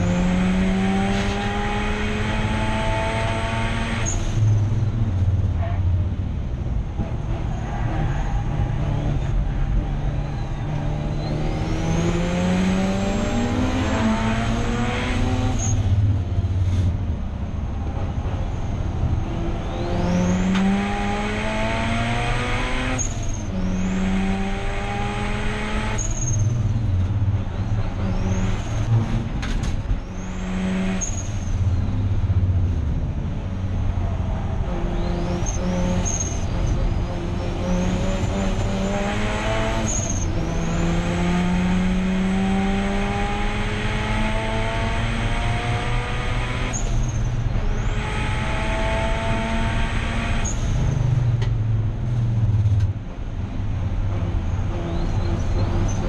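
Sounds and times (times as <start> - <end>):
rotary engine accelerating hard: 0.0 - 5.6, 6.5 - 56.0.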